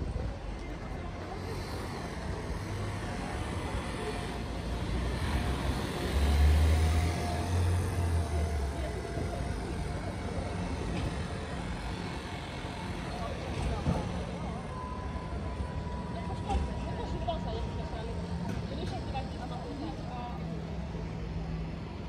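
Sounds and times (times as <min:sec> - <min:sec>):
background traffic noise: 0:00.0 - 0:22.0.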